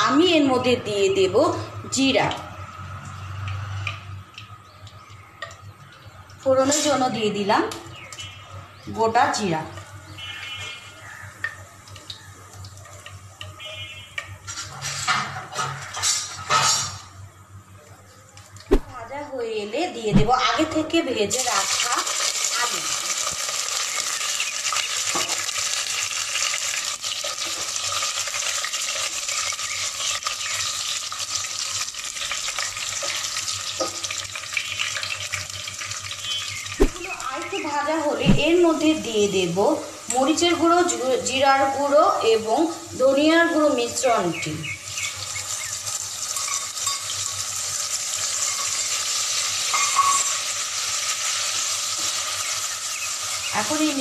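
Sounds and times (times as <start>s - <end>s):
potatoes sizzling in hot oil: 5.8s - 15.1s, 20.4s - 54.0s.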